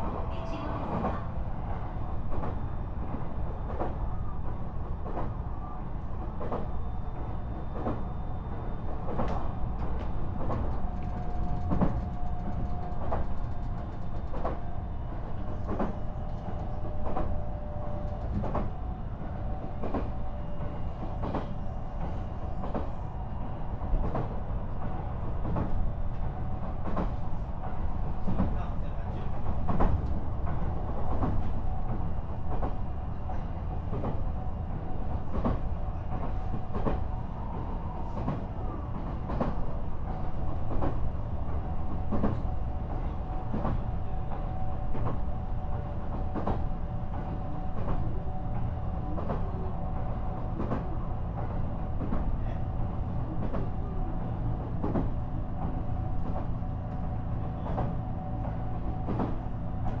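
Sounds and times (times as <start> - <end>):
electric train rumbling: 0.0 - 60.0.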